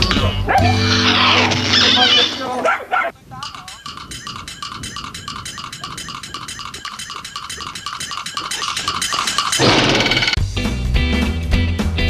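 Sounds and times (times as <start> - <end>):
strummed guitar music: 0.0 - 2.1
rapid animal calls: 0.1 - 10.4.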